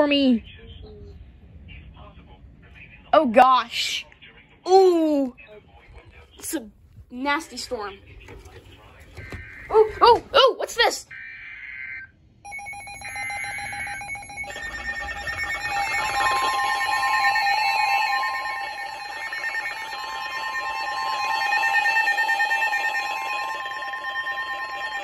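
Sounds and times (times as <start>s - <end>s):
rapidly pulsing alarm beep: 11.1s - 25.0s
steady high alert tone: 12.5s - 25.0s.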